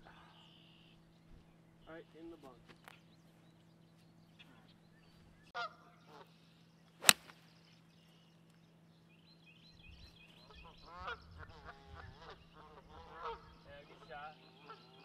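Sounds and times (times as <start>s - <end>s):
golf club striking ball: 7.0s - 7.4s.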